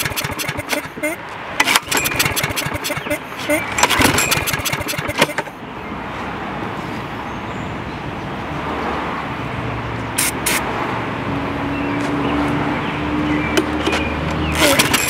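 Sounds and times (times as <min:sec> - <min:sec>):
road traffic: 0:00.0 - 0:15.0
sharp clicks: 0:01.6 - 0:05.5.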